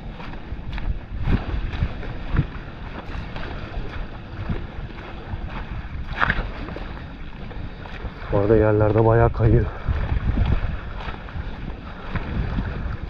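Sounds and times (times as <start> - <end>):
footsteps on muddy pebbly path: 0.0 - 13.0
wind rumbling on microphone: 0.0 - 13.0.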